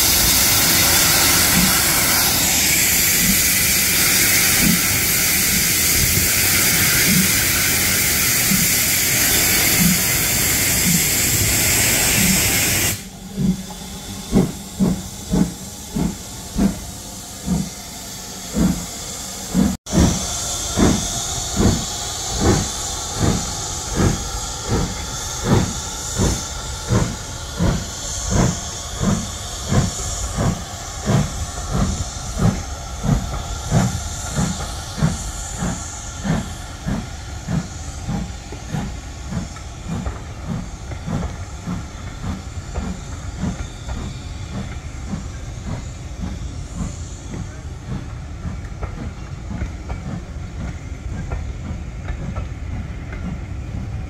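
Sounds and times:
loud hiss of steam: 0.0s - 54.0s
steam locomotive exhaust chuffing: 0.0s - 54.0s.

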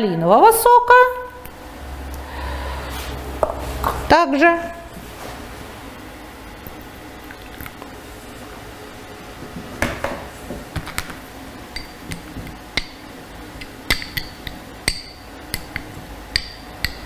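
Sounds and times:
metal spoon clinking on glass bowl: 11.8s - 12.1s, 13.9s - 15.8s, 16.4s - 17.0s.

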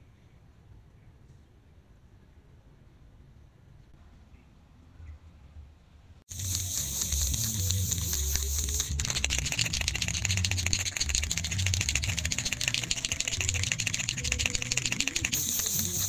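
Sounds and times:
steady hiss: 6.3s - 16.0s.

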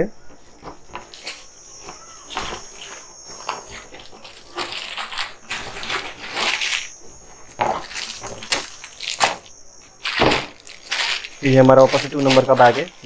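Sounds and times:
plastic bags crinkling: 0.4s - 13.0s
plastic bricks rattling: 7.6s - 13.0s.

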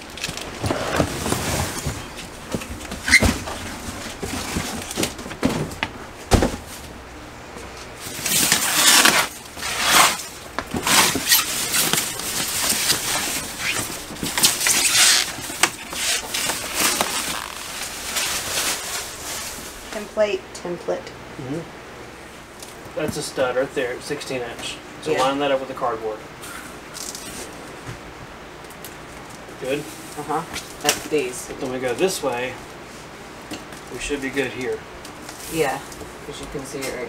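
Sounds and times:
plastic bag crinkling: 8.1s - 19.9s.

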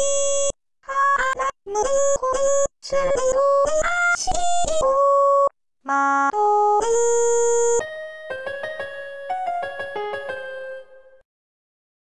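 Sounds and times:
electronic keyboard music: 5.9s - 11.2s.

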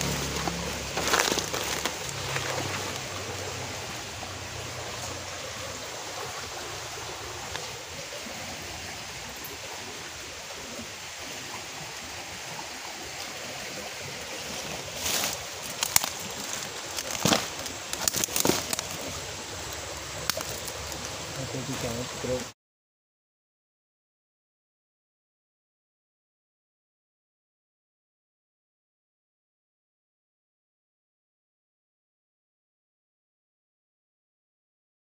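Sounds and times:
dry leaves and twigs snapping: 0.0s - 3.4s, 14.9s - 21.2s
stream water rushing: 0.0s - 22.5s.

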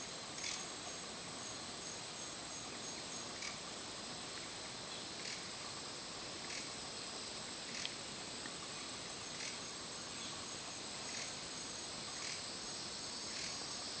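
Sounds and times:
high-pitched insect drone: 0.0s - 3.6s, 5.0s - 8.0s, 9.2s - 14.0s.

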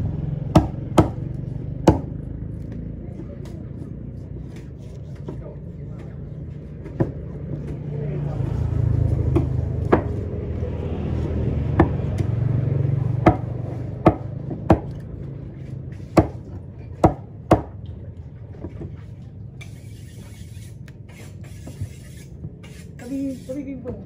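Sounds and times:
knife chopping on wooden block: 0.5s - 1.2s, 1.8s - 2.2s, 9.3s - 10.2s, 13.2s - 15.0s, 15.6s - 17.8s.

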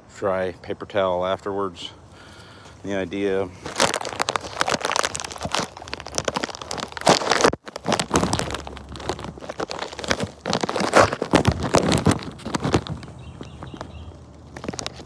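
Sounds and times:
paper crinkling and rustling: 3.4s - 15.0s.

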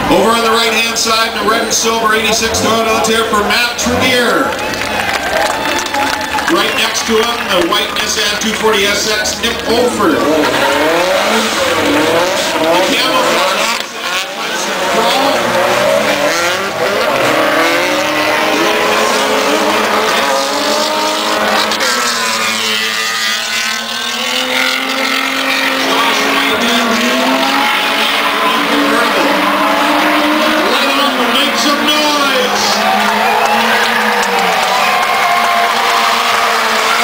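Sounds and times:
car engines revving: 0.0s - 37.0s.

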